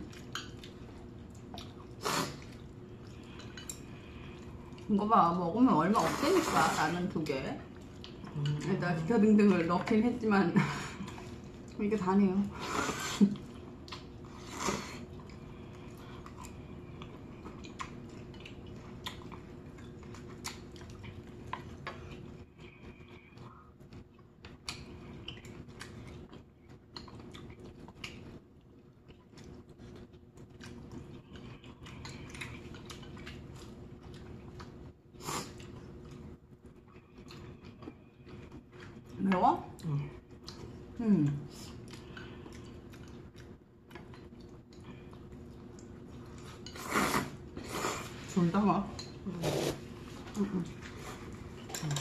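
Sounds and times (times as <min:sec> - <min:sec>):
person chewing noodles: 0:00.0 - 0:05.0, 0:07.7 - 0:08.8, 0:12.6 - 0:39.2, 0:39.8 - 0:48.4
faint steady hum: 0:00.0 - 0:52.0.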